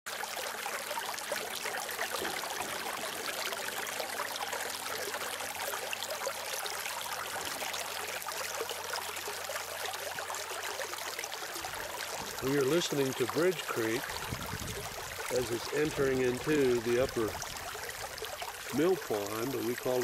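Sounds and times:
creek water rushing: 0.1s - 20.0s.

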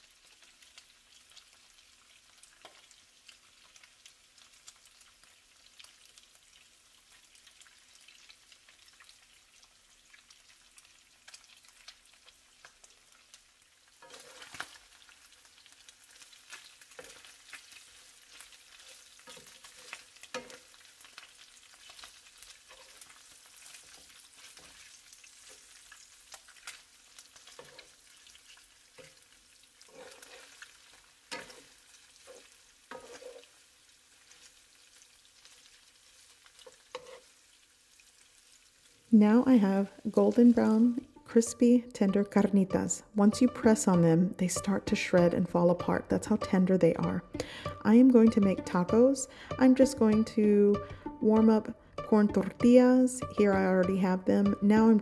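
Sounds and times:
meat sizzling in oil: 0.0s - 41.2s
wooden spatula scraping pan: 14.0s - 14.8s, 18.8s - 20.7s, 29.8s - 30.7s, 31.3s - 33.6s, 36.7s - 37.3s.

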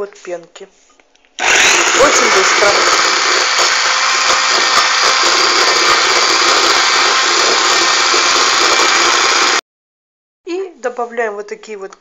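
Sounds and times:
electric hand mixer whisking: 1.4s - 9.6s.

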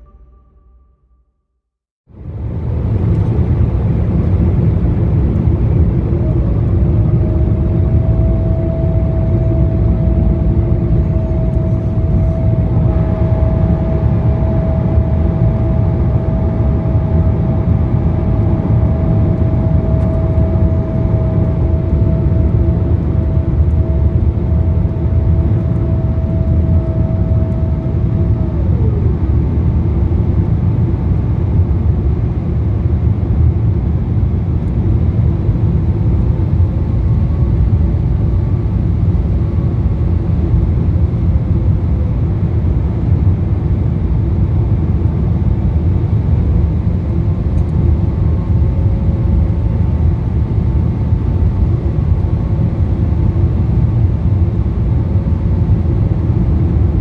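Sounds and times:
whine sliding down in pitch: 0.0s - 1.2s, 5.6s - 30.8s
airflow and engine rumble: 2.1s - 57.0s.

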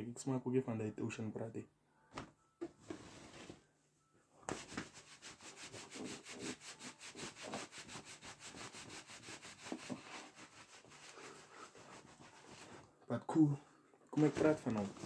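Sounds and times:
towel rubbing hair: 4.5s - 12.8s.

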